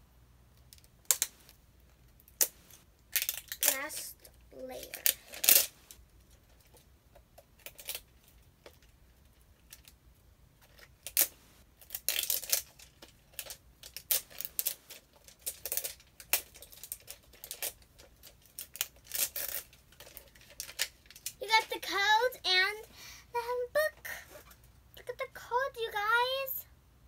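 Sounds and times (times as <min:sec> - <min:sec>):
plastic wrapping crinkling: 0:10.6 - 0:22.9.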